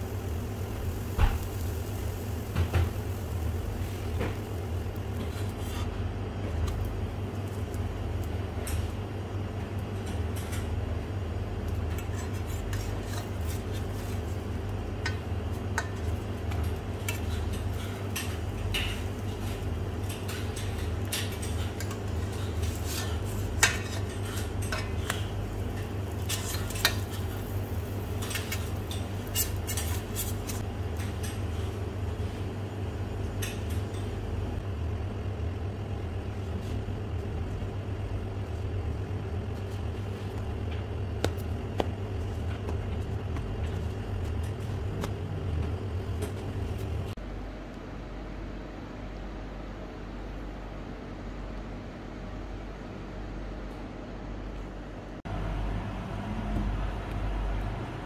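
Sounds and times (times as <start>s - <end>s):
metal spatula scraping pan: 26.1s - 27.6s.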